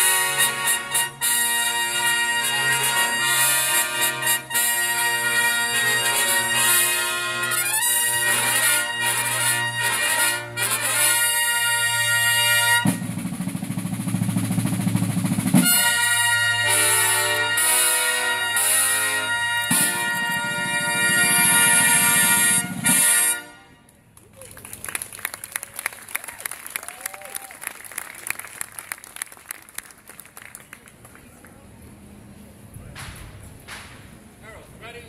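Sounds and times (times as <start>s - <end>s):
brass fanfare: 0.0s - 23.8s
field drum roll: 8.4s - 23.4s.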